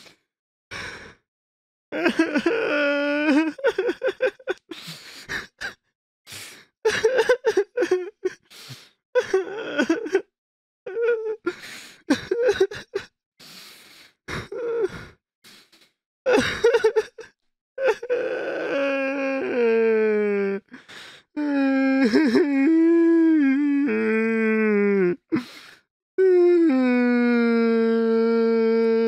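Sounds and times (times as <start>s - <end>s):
person crying in sobs: 2.0s - 5.8s, 6.9s - 8.5s, 9.2s - 10.3s, 10.9s - 13.1s, 14.3s - 15.1s, 16.3s - 25.6s, 26.2s - 29.0s
gasping breaths: 20.6s - 21.7s, 25.2s - 25.9s.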